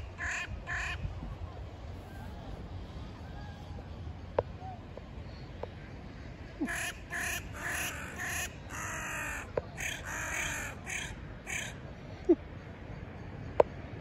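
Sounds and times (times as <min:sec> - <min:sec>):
crows cawing: 0:06.6 - 0:11.8.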